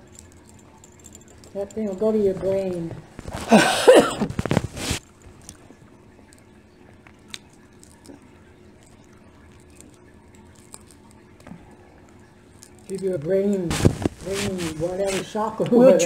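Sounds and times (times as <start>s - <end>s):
shells being peeled by hand: 0.0s - 3.6s, 4.2s - 15.4s.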